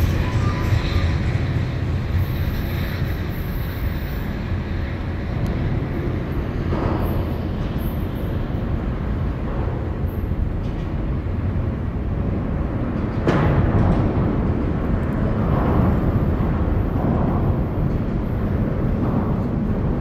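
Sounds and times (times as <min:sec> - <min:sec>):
train rumbling away: 0:00.0 - 0:20.0.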